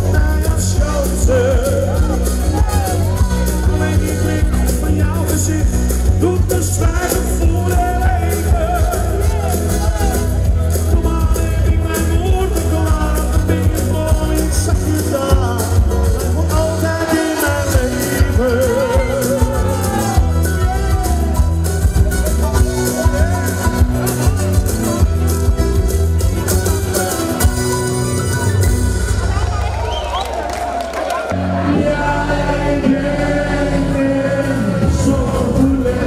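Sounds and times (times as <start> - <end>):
person singing with vibrato: 0.0 - 21.7, 31.4 - 36.0
pounding bass beat: 0.0 - 29.9.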